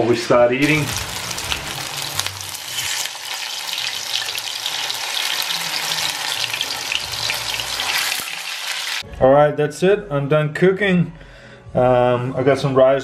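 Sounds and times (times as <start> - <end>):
fish cakes sizzling in oil: 0.6 - 9.0.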